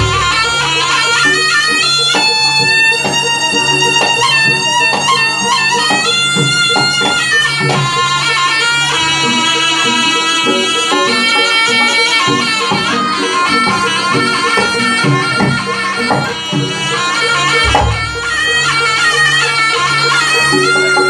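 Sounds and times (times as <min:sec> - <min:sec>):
struck pitched gongs: 0:00.0 - 0:01.4, 0:16.6 - 0:19.2
reedy shawm melody: 0:00.0 - 0:21.0.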